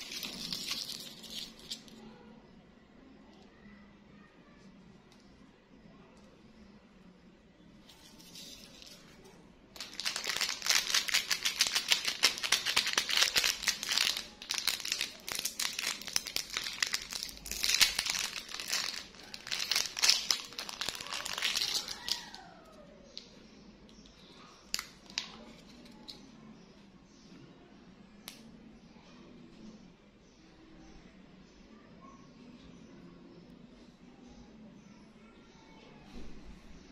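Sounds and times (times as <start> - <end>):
plastic wrapper crinkling and tearing: 0.0 - 2.0, 9.8 - 22.4, 24.7 - 25.7.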